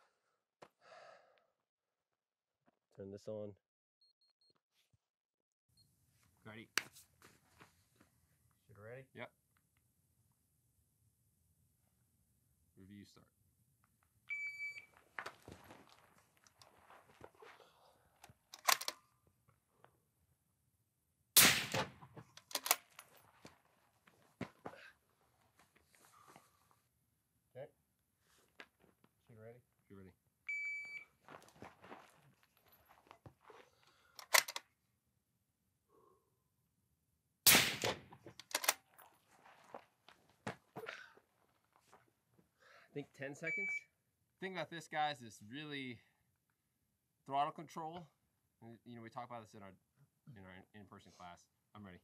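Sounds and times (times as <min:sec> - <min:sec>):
rifle metallic clicks: 0:18.6 - 0:19.0, 0:21.4 - 0:23.0, 0:34.2 - 0:34.6, 0:37.5 - 0:38.8
suppressed rifle shot: 0:21.4 - 0:22.1, 0:37.5 - 0:38.1.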